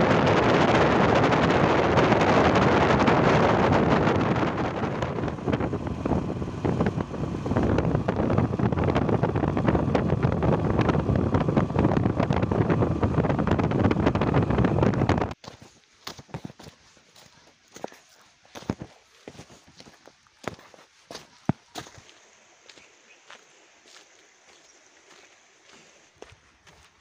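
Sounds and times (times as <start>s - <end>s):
road and vehicle noise: 0.0s - 15.4s
wind buffeting microphone: 0.0s - 15.4s.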